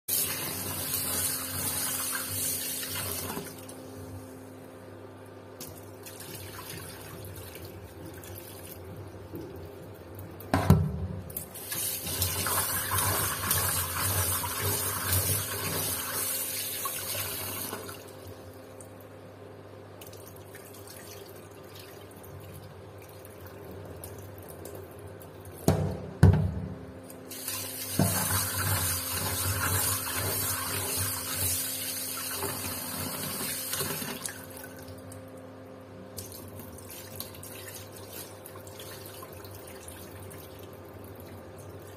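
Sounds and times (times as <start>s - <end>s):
tap water running into a pot: 11.4s - 18.1s, 27.3s - 34.9s.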